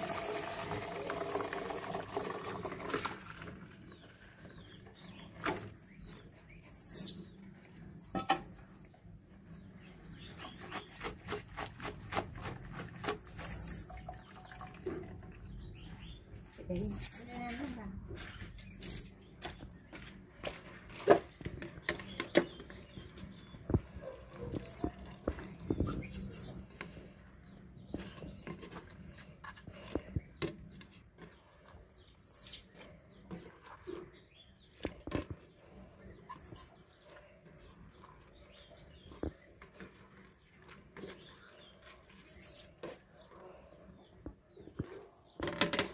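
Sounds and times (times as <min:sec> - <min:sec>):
high chirping calls: 0:06.5 - 0:07.3, 0:13.4 - 0:14.2, 0:18.5 - 0:19.2, 0:23.7 - 0:25.0, 0:25.7 - 0:26.7, 0:31.9 - 0:32.7, 0:36.2 - 0:36.8, 0:42.2 - 0:42.8.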